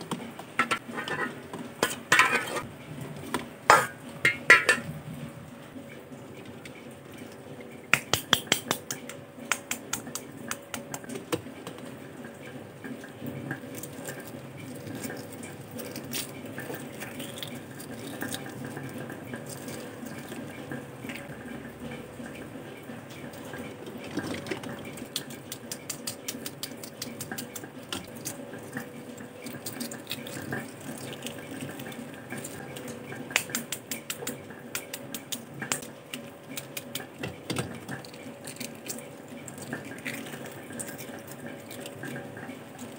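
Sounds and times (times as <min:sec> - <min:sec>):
eggs cracking on steel bowl: 0:03.7 - 0:04.9, 0:07.9 - 0:11.8, 0:13.6 - 0:20.1, 0:24.1 - 0:42.2
eggshell crackling: 0:13.6 - 0:21.2, 0:23.8 - 0:42.9.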